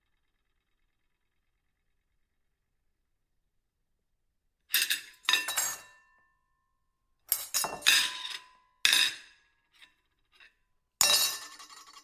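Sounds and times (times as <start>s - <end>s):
ceramic plate clinking: 7.4s - 8.2s.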